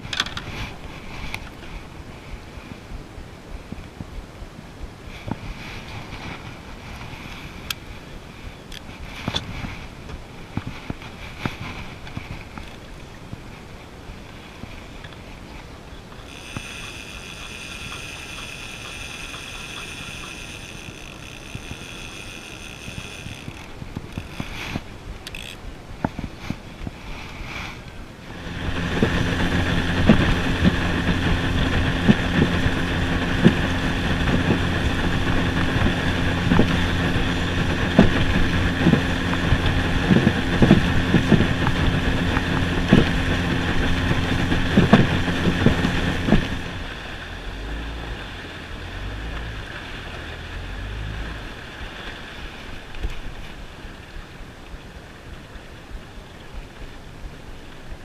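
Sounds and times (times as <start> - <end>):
wind on microphone: 0.0 - 49.8
outboard motor running: 16.0 - 53.8
hull knocking on water: 28.4 - 46.7.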